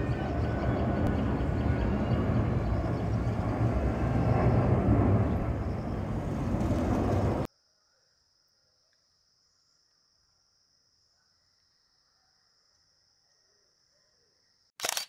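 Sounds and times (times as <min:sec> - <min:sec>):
jet engines rumbling: 0:00.0 - 0:07.5.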